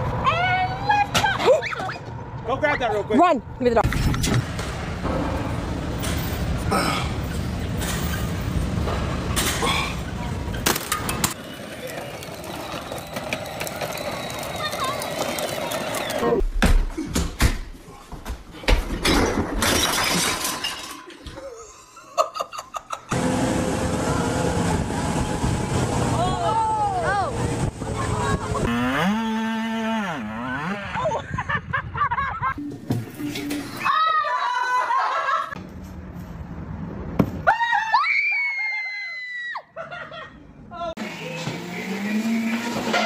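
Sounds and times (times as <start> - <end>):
bottles and jars falling on floor: 18.2 - 21.4
high-pitched screams: 33.7 - 35.0.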